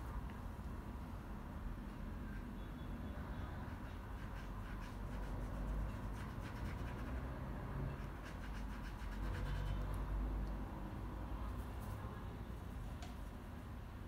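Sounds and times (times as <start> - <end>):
paintbrush scratching on paper: 3.7 - 7.3, 7.9 - 10.0.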